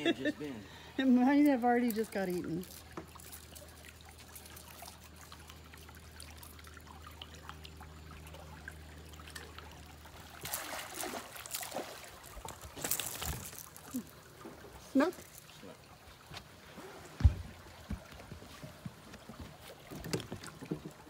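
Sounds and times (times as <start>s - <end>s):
rough water noise: 0.0s - 21.0s
water lapping beside boat: 0.0s - 21.0s.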